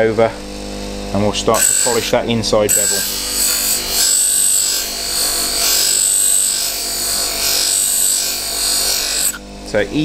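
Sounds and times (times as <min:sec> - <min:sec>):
motor hum: 0:00.0 - 0:10.0
blade hissing on buffing wheel: 0:01.6 - 0:09.4.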